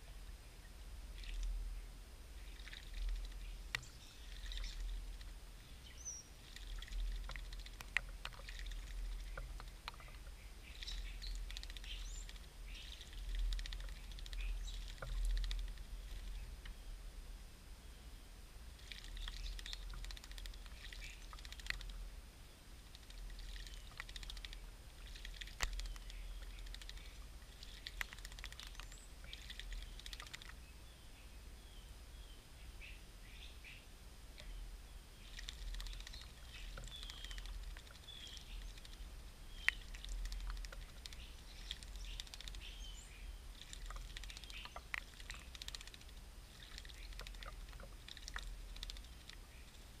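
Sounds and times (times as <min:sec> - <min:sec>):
bird splashing in water: 0:02.4 - 0:05.4, 0:06.4 - 0:16.5, 0:18.8 - 0:22.0, 0:22.8 - 0:30.6, 0:35.2 - 0:42.8, 0:43.5 - 0:49.4
birds chirping and whistling: 0:05.8 - 0:06.3, 0:09.2 - 0:13.0, 0:35.9 - 0:38.8, 0:41.2 - 0:43.4, 0:44.2 - 0:44.8
sharp clicks: 0:43.6 - 0:46.1.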